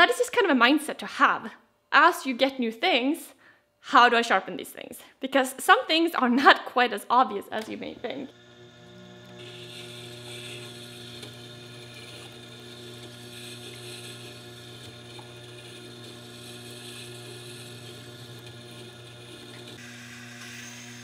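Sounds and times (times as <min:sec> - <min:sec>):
grinder motor humming: 0:07.6 - 0:21.0
blade grinding on wet stone: 0:09.4 - 0:19.9.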